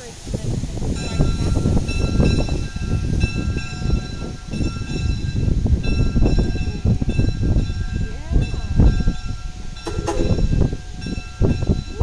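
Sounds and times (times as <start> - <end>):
locomotive rumble: 0.0 - 12.0
steam locomotive whistle: 9.8 - 11.1.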